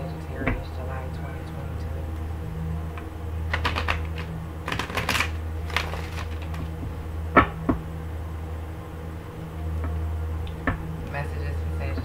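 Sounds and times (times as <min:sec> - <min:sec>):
steady low hum: 0:00.0 - 0:12.0
cards being shuffled: 0:03.5 - 0:06.8.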